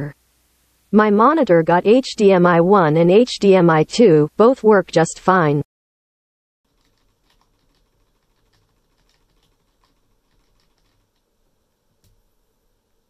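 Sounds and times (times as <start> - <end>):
computer keyboard key tapping: 6.7 - 11.3.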